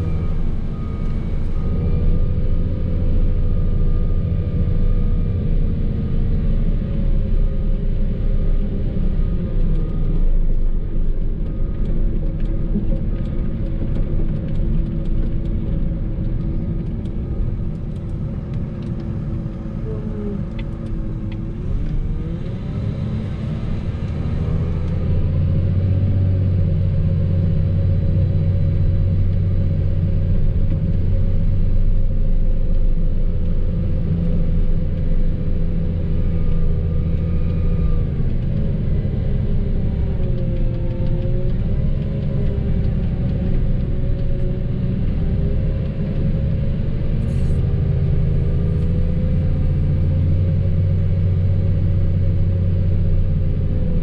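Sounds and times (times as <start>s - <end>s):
vehicle engine running under load: 0.0s - 54.0s.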